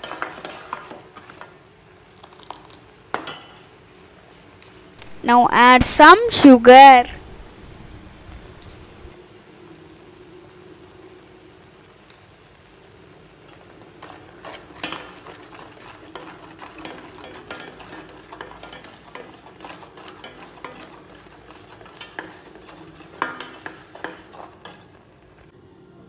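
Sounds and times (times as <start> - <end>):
spoon scraping metal pot: 14.0 - 24.9.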